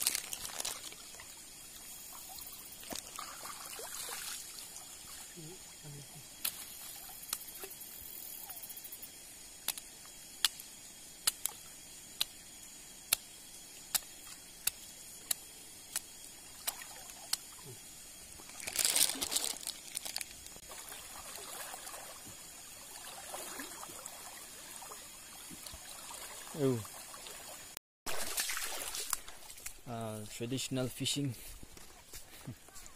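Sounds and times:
stream water trickling: 0.0s - 30.0s
splashing: 2.0s - 5.5s, 18.4s - 29.8s.

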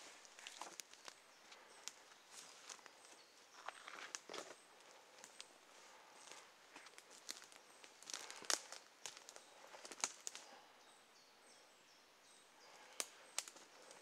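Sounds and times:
twigs cracking: 0.2s - 5.5s, 6.2s - 10.6s, 12.7s - 14.0s
footsteps crunching through leaves: 6.3s - 10.4s.

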